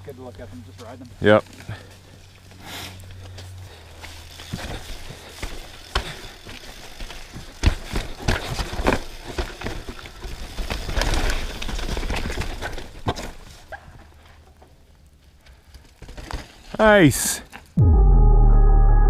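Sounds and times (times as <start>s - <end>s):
tyres rumbling on rocks: 3.2s - 16.7s
bike knocks and clatter: 4.4s - 14.6s.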